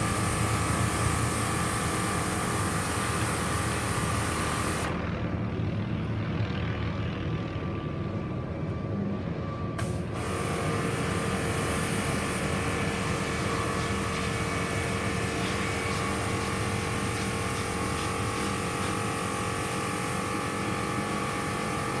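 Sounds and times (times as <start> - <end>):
pressure washer spraying water: 0.0 - 4.9, 9.8 - 22.0
helicopter flying overhead: 0.0 - 22.0.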